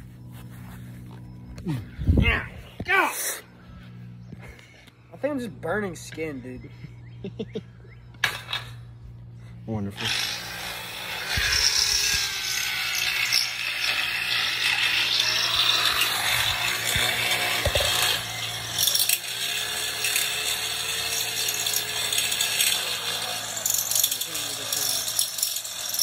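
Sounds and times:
electric drill grinding into steel: 10.0s - 26.0s.

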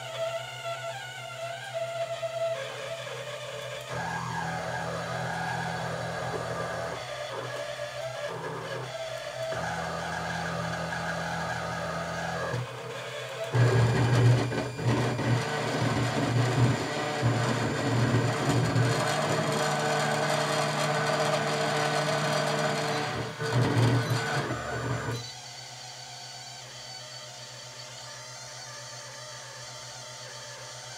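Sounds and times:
printer buzzing hum: 2.7s - 25.8s.

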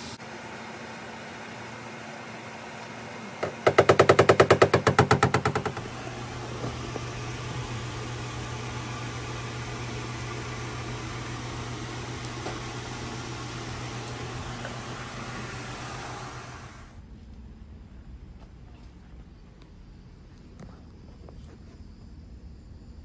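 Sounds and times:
tool tapping metal panel: 3.4s - 5.9s
steady low hum: 4.8s - 23.0s.

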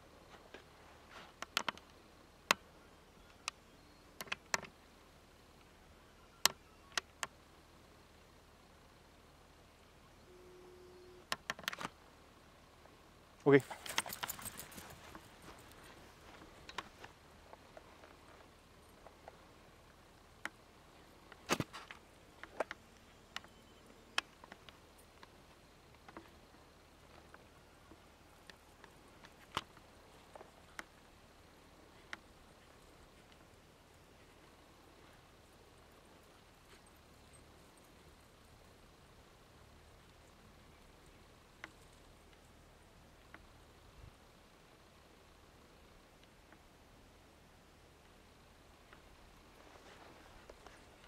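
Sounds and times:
faint steady hiss: 0.0s - 51.0s
sharp clicks and taps: 1.4s - 2.6s.

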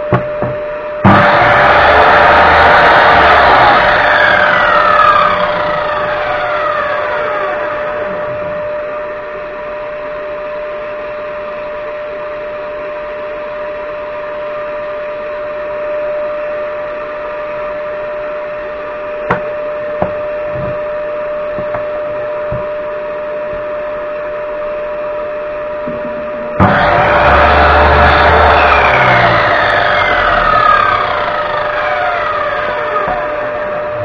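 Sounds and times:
shop vacuum running: 0.0s - 34.0s.

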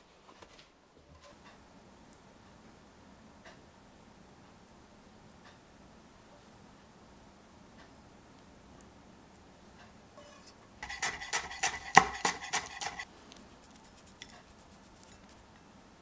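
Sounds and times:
knife chopping on wooden board: 10.8s - 13.0s.

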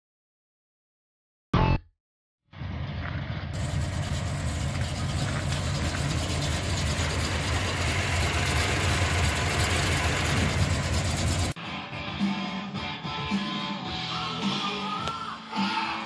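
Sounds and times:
truck engine idling: 3.6s - 11.6s.

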